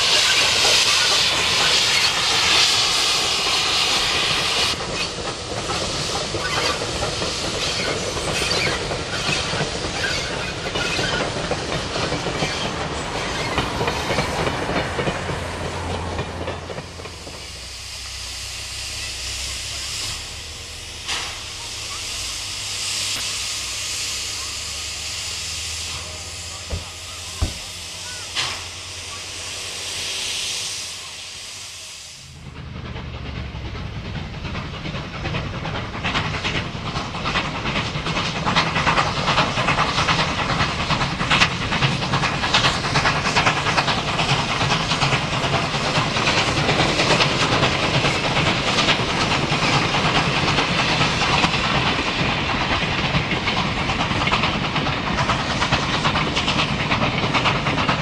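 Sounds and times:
steam hissing from locomotive: 0.0s - 32.8s, 33.4s - 58.0s
steam locomotive exhaust chuffing: 0.0s - 58.0s
rumble of wagons: 4.2s - 17.8s, 32.4s - 58.0s.

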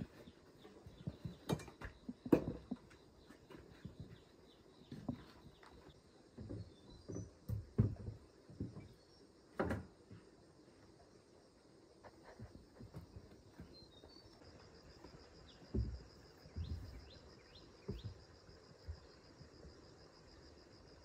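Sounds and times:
tools knocking and clattering: 0.9s - 3.0s.

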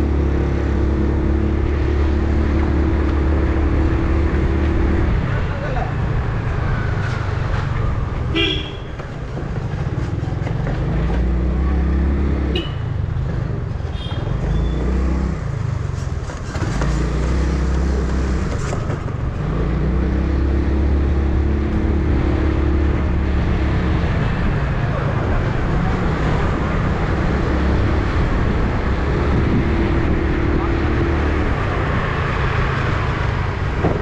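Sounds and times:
vehicle horns honking: 8.3s - 9.0s, 12.5s - 12.9s.

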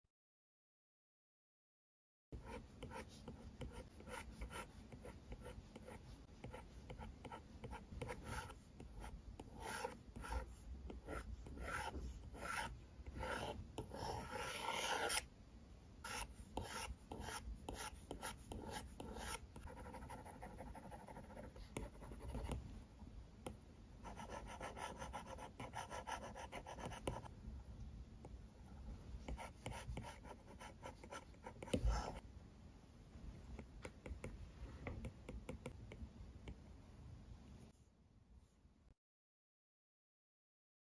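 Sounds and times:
stylus scratching on glass screen: 2.4s - 15.3s.

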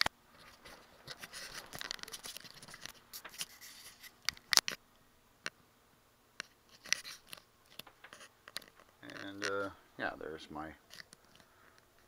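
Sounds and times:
phone handling rustling and scraping: 0.0s - 4.8s, 6.4s - 9.7s, 10.8s - 11.5s.

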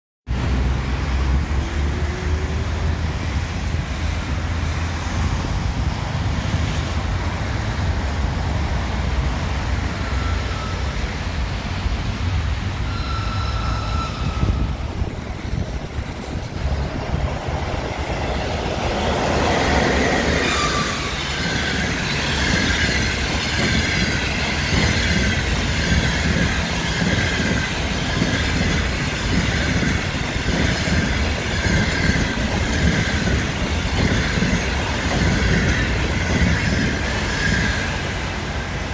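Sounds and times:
train passing: 0.3s - 38.9s
wheels on rails: 1.0s - 38.9s
high wheel squeal: 9.3s - 11.5s, 12.7s - 16.9s, 18.8s - 38.2s.

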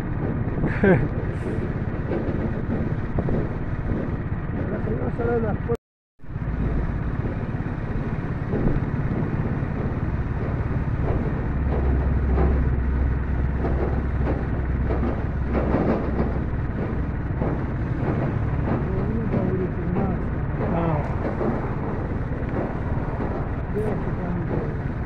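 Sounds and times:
road noise: 0.0s - 25.0s
vehicle engine rumble: 0.0s - 25.0s.

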